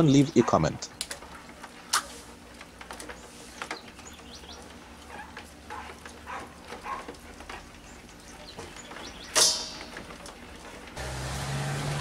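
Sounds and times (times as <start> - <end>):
crabs scratching on plastic tub: 0.4 - 9.3.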